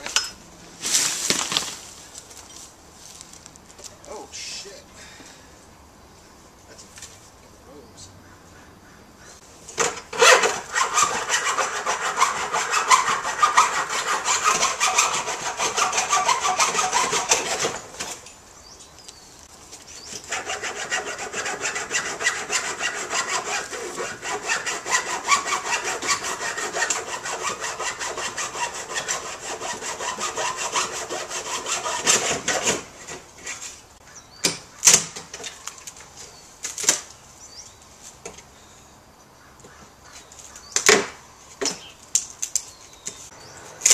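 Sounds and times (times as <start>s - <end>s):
hand saw cutting wood: 9.8s - 18.2s, 20.0s - 33.8s.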